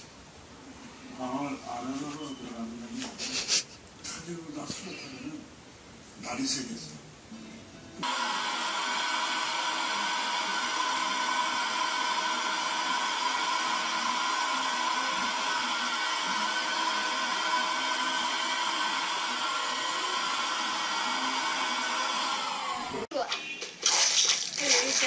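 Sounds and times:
handheld vacuum cleaner running: 0:08.0 - 0:23.1.

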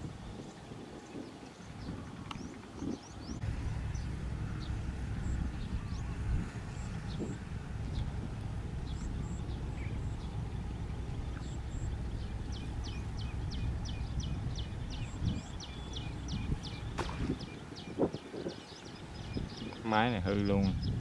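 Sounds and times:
small engine idling: 0:03.3 - 0:17.4.

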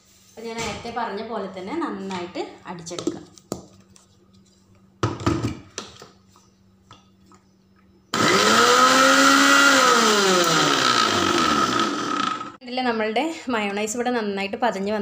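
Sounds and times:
mixer grinder motor running: 0:08.2 - 0:12.6.

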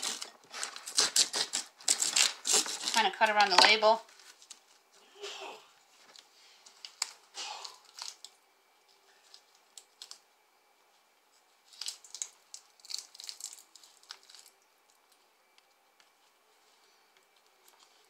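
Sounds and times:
cloth and plastic wrap rustling: 0:00.0 - 0:08.3.

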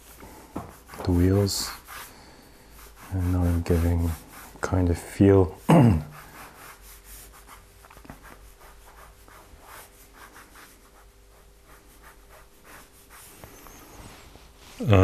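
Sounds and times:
pen scratching on paper: 0:06.2 - 0:13.9.

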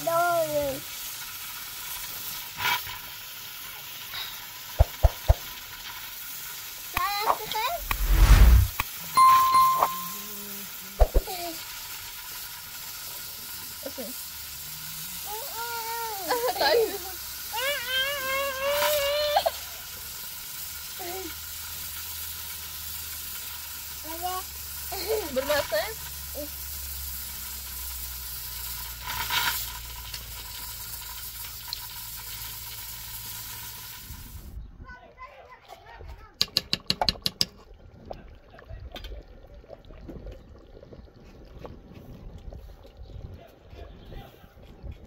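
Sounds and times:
small child's voice: 0:00.0 - 0:00.9, 0:06.9 - 0:07.9, 0:10.3 - 0:11.7, 0:15.2 - 0:19.6, 0:20.9 - 0:21.4, 0:24.0 - 0:26.6, 0:34.8 - 0:36.4
high-pitched voice holding aaah: 0:15.3 - 0:16.4, 0:17.5 - 0:19.6.

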